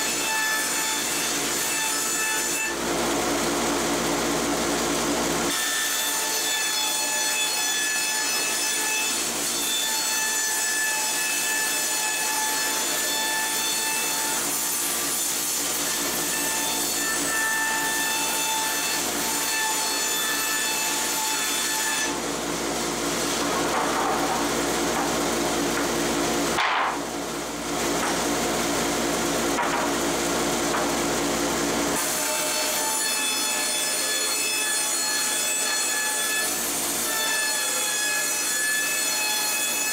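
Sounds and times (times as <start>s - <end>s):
dust collector running: 2.7s - 5.6s, 22.1s - 32.2s.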